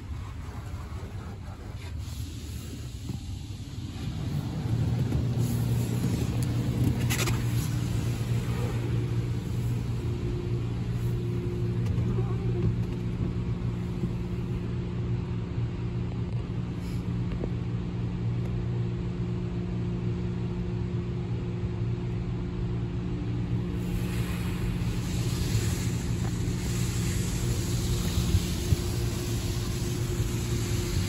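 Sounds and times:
car wash machinery hum: 0.0 - 31.0
water spray hissing: 23.8 - 31.0.

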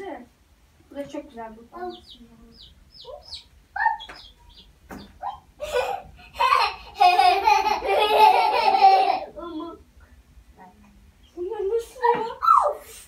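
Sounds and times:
girl laughing: 5.6 - 9.5.

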